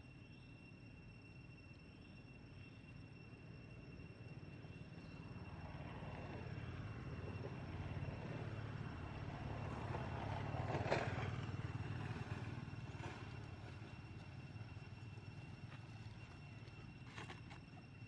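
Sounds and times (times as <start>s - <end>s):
vehicle engine drone passing: 5.0s - 17.0s.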